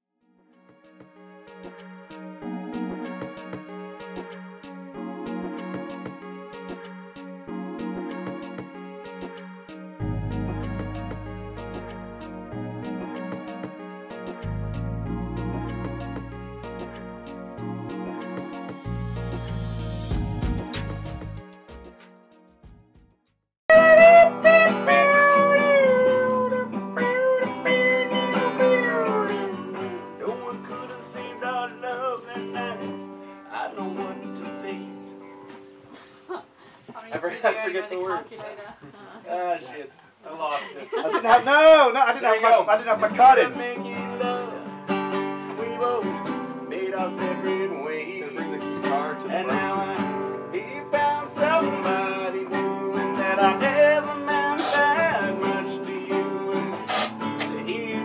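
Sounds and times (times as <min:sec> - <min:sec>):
person singing: 0:23.7 - 0:35.0, 0:45.4 - 0:58.0
classical guitar playing: 0:23.7 - 0:35.5, 0:43.4 - 0:58.0.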